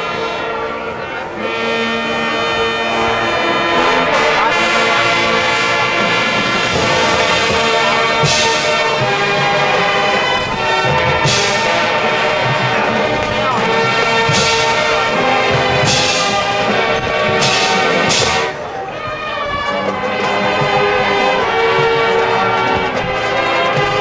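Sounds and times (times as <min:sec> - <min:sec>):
brass sustained chords: 0:00.0 - 0:24.0
marching band playing: 0:00.0 - 0:24.0
loud cymbal crashes: 0:06.6 - 0:18.6.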